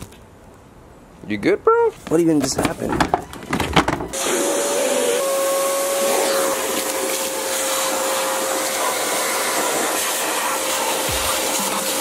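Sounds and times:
shop vacuum running: 0:04.1 - 0:12.0.

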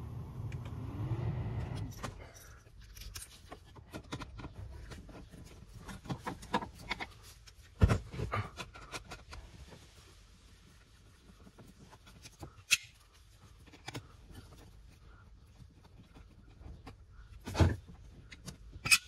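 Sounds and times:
steady hum with rising tone: 0:00.0 - 0:02.1.

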